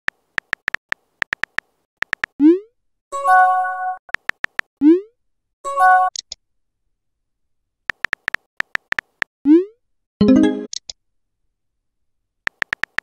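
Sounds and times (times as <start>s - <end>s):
keyboard tap clicks: 0.4s - 2.3s, 4.1s - 4.7s, 7.9s - 9.3s, 12.5s - 13.0s.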